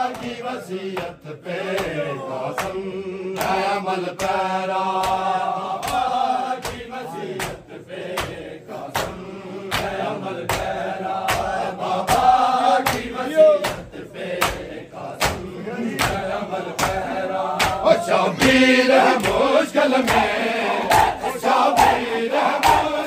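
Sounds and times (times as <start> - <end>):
men chanting: 0.0 - 23.0
chest slapping in unison: 5.0 - 18.6, 20.9 - 23.0.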